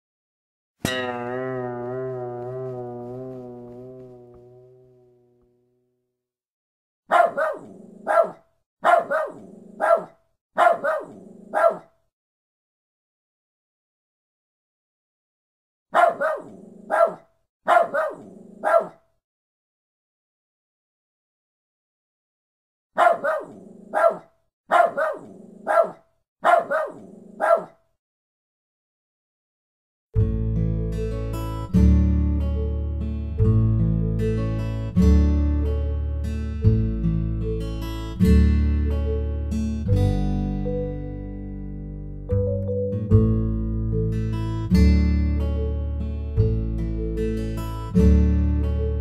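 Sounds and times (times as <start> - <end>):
dog barking: 7.1 - 12.0, 15.9 - 19.0, 23.0 - 27.8.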